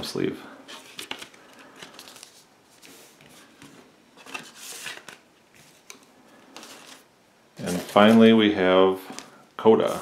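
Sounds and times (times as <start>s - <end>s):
paper sleeves rustling: 0.6s - 10.0s.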